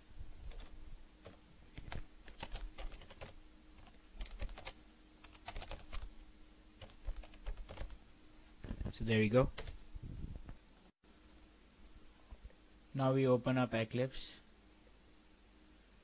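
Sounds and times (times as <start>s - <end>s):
keyboard typing: 0.4s - 6.1s, 6.8s - 8.0s, 9.5s - 9.8s.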